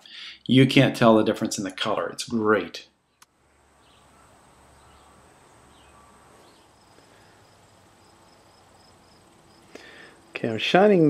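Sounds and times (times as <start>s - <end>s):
insects chirping: 3.1s - 10.4s
rapidly pulsing high insect trill: 3.8s - 10.5s.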